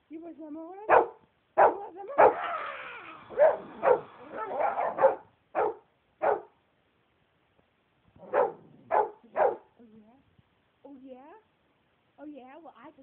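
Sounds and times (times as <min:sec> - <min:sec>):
dog barking: 0:00.9 - 0:02.5, 0:03.3 - 0:06.6, 0:08.2 - 0:09.7.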